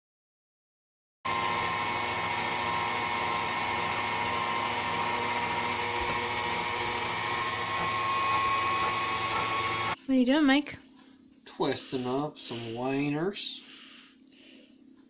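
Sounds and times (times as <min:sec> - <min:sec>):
stand mixer motor humming: 0:01.3 - 0:10.0.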